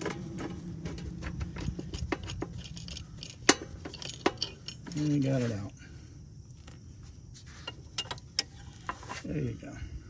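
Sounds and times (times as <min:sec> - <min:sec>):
metal bolt clicking and clinking: 0:01.5 - 0:05.2.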